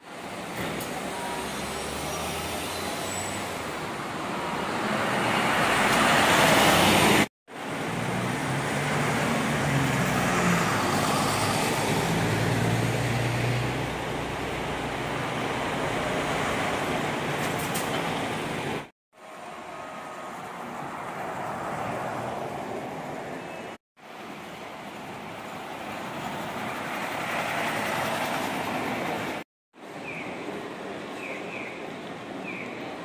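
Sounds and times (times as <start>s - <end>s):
traffic noise: 0.0s - 33.0s
bus driving past: 0.2s - 23.8s.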